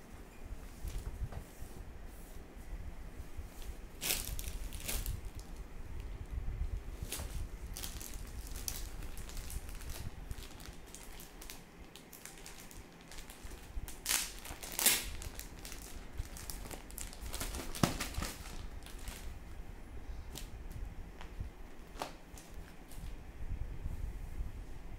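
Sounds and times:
plastic packaging crinkling: 4.0 - 5.7, 7.0 - 19.4, 21.2 - 23.2.

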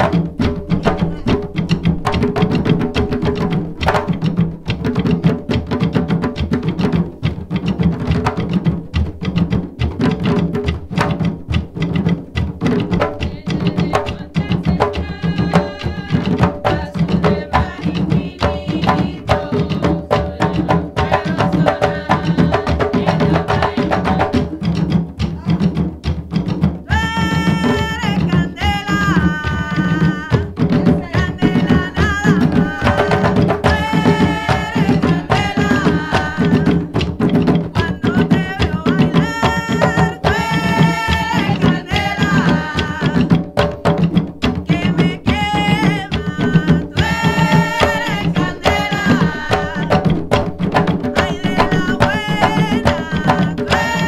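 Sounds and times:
fast steady hand drumming: 0.0 - 54.0
lead drum accents: 0.0 - 54.0
person singing long notes: 26.9 - 36.9, 37.8 - 43.4, 44.7 - 50.0, 51.2 - 54.0.

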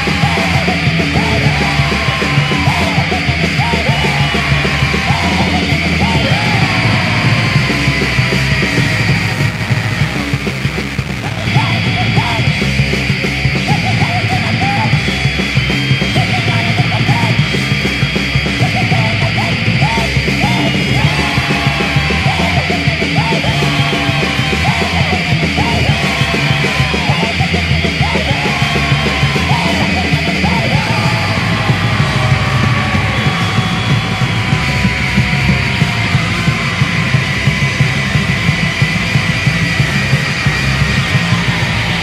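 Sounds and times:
distorted guitars: 0.0 - 42.0
drums: 0.0 - 42.0
yelled vocals: 0.0 - 42.0.

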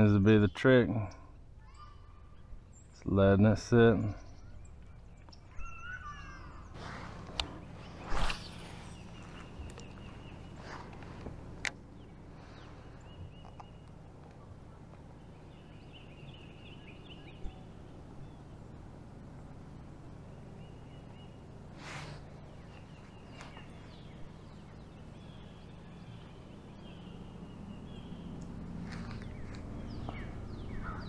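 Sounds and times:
low steady hum: 0.0 - 31.0
faint bird chirps: 0.3 - 3.1, 3.9 - 11.2, 20.2 - 31.0.

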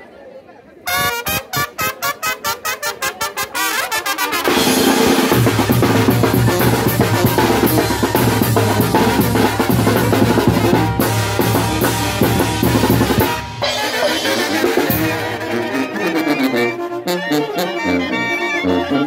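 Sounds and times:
snare drum: 4.2 - 15.5
cymbals: 4.4 - 15.8
bass drum: 5.0 - 15.4.

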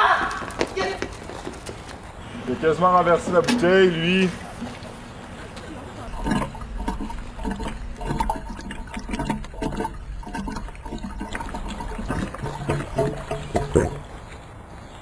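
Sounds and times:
water glugging from jug: 3.3 - 14.2.

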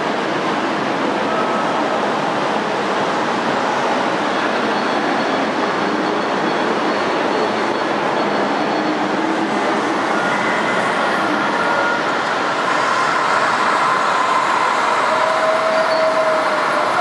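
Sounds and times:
hall background noise: 0.0 - 17.0.

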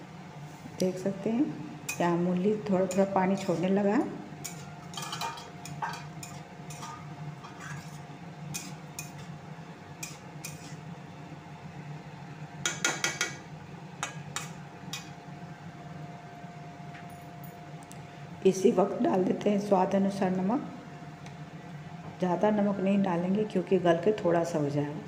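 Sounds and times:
steady low hum: 0.0 - 25.0
metal spatula scraping metal pan: 4.4 - 9.3, 10.0 - 10.8.

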